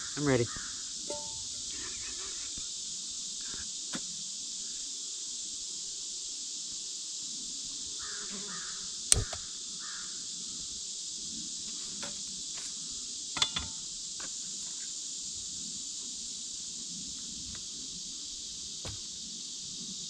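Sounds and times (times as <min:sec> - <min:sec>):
insects droning: 0:00.0 - 0:20.0
sharp knocks: 0:01.1 - 0:01.6
crow cawing: 0:08.0 - 0:08.8, 0:09.8 - 0:10.2.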